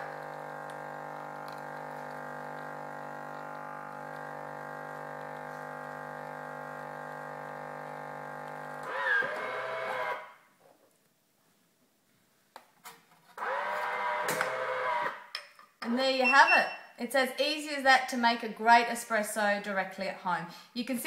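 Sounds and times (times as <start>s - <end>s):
coffee machine pump humming: 0.0s - 10.2s.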